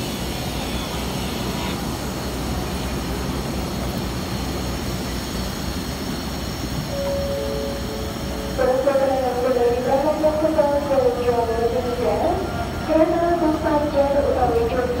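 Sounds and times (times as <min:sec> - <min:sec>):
train rumbling on rails: 0:00.0 - 0:15.0
faint high whine: 0:06.5 - 0:11.1.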